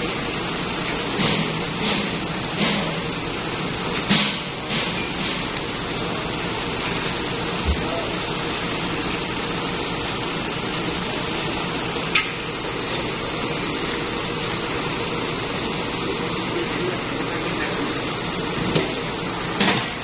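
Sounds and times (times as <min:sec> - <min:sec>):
diesel engine idling: 0:00.0 - 0:20.0
sharp metallic clink: 0:12.1 - 0:12.6.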